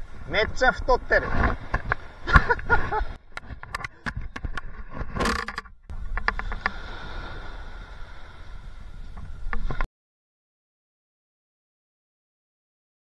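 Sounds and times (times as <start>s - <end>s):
small waves washing on sand: 5.9s - 9.8s.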